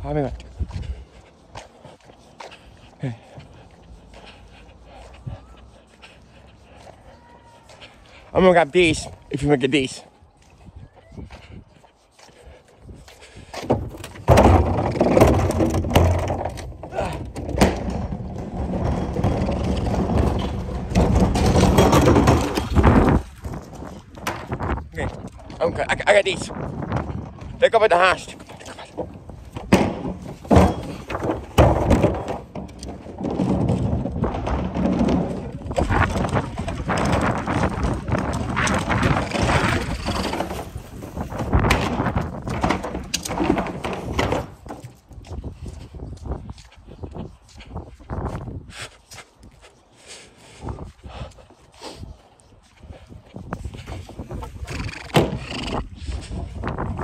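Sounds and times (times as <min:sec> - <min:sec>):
plastic wheels rattling on concrete: 0:13.2 - 0:46.5
plastic bin knocks and rattles: 0:13.7 - 0:23.2, 0:41.3 - 0:44.6.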